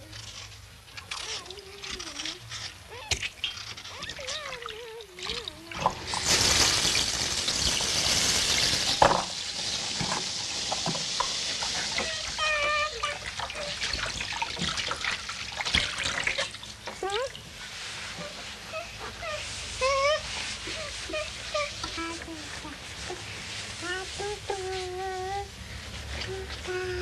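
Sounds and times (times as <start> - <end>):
water splashing in a washbasin: 0.0 - 27.0
high-pitched voice: 1.2 - 3.1, 3.9 - 5.9, 17.0 - 17.4, 18.8 - 22.8, 23.8 - 25.5, 26.2 - 27.0.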